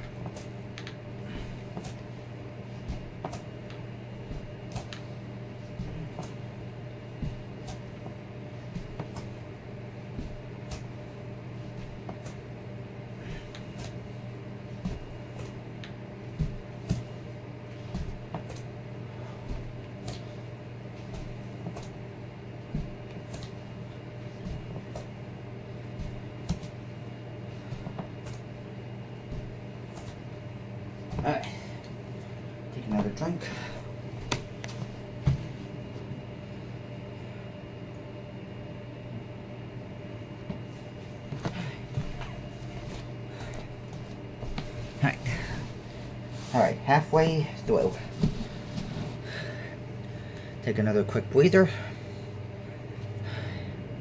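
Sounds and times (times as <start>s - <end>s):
steady low hum: 0.0s - 54.0s
foot knocking on exercise mat: 2.8s - 5.0s, 5.7s - 6.4s, 7.1s - 9.4s, 10.0s - 11.0s, 14.8s - 17.2s, 17.8s - 18.7s, 19.4s - 20.3s, 21.0s - 22.0s, 22.6s - 23.6s, 24.3s - 25.3s, 25.9s - 26.8s, 27.6s - 28.5s, 29.2s - 30.4s, 31.0s - 31.7s, 32.9s - 35.6s, 40.4s - 45.8s, 47.8s - 49.1s.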